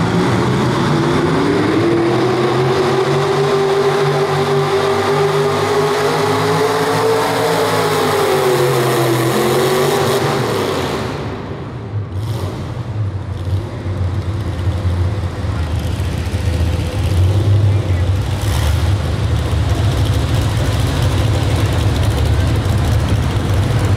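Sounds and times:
truck engine revving under load: 0:00.0 - 0:23.9
engine idling: 0:13.3 - 0:23.9.

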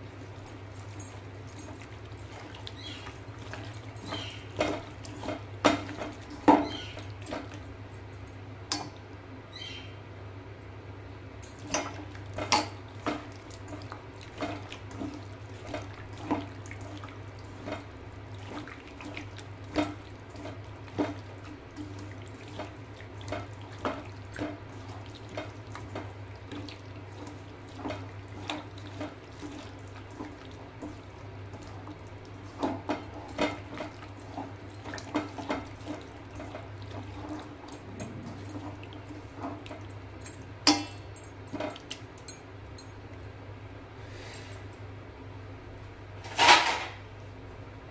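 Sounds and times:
wet squelches of mixing meat: 0:00.0 - 0:08.2, 0:11.4 - 0:40.7
steady low hum: 0:00.0 - 0:46.4.

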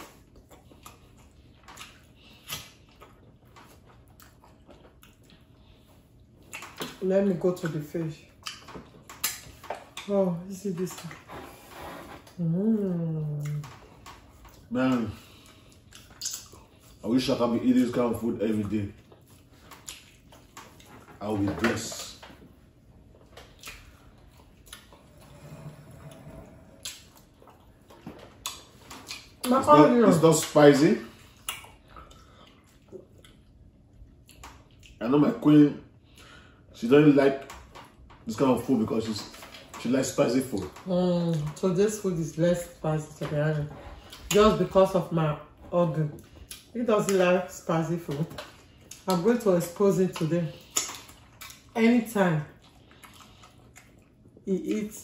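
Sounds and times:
chewing and mouth smacks: 0:00.0 - 0:10.1, 0:13.4 - 0:17.1, 0:17.7 - 0:29.6, 0:30.2 - 0:35.0, 0:45.5 - 0:47.4, 0:48.0 - 0:49.3, 0:50.1 - 0:51.8, 0:52.4 - 0:55.0
mouth and finger clicks while eating: 0:08.4 - 0:10.1, 0:15.8 - 0:16.6, 0:23.4 - 0:24.9.

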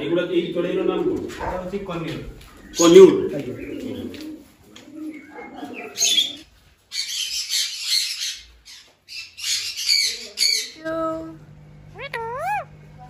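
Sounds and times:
parrots screeching: 0:09.1 - 0:10.8, 0:11.9 - 0:12.8.

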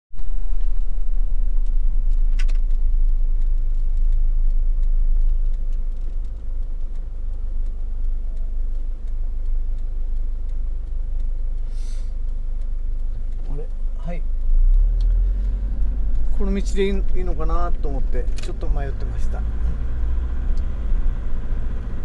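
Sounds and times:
engine and tyre rumble: 0:00.1 - 0:22.0
sharp click: 0:01.6 - 0:07.8
short hiss: 0:11.6 - 0:12.2.

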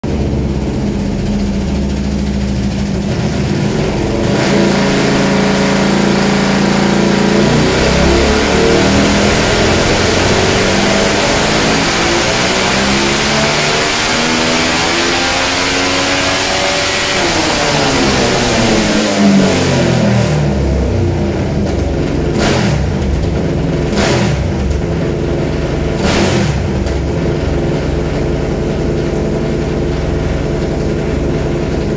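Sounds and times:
motorcycle engine revving: 0:00.0 - 0:31.9
short sharp engine bursts: 0:04.4 - 0:20.1.

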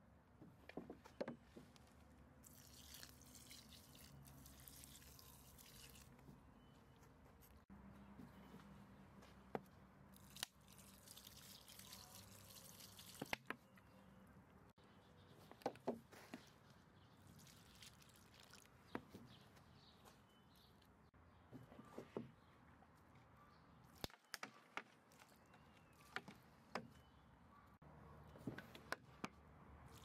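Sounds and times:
liquid dripping onto soil: 0:02.4 - 0:06.2, 0:10.1 - 0:13.6, 0:17.2 - 0:18.8.

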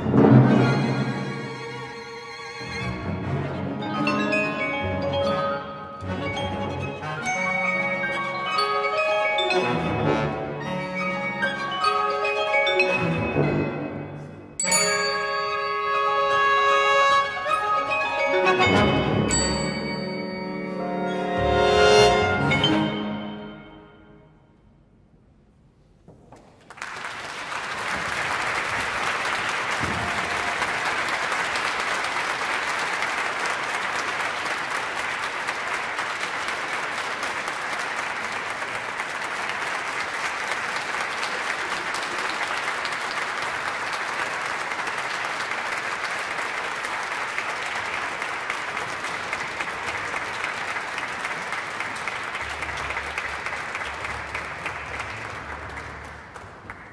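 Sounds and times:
audience applause: 0:26.6 - 0:56.9.

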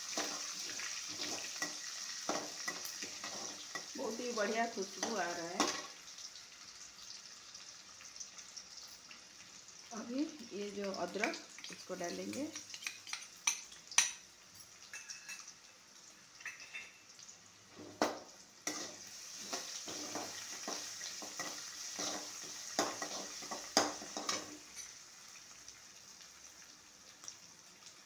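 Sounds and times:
spatula scraping pan: 0:00.0 - 0:03.9, 0:18.6 - 0:24.9
spices sizzling in hot oil: 0:00.0 - 0:28.0
spatula knocking on pan: 0:22.8 - 0:24.5.

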